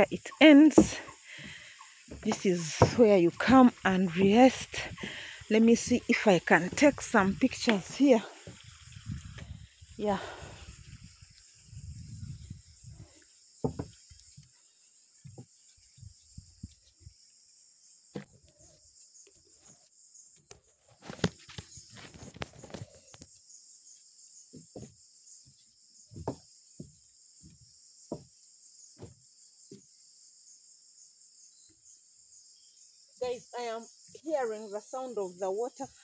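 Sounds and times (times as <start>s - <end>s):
insects chorus: 0.0s - 36.0s
footsteps on wooden walkway: 0.5s - 9.4s.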